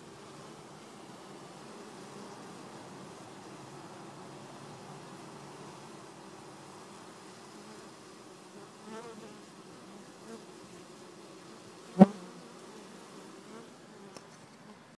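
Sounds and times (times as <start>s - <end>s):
bees buzzing: 0.0s - 14.9s.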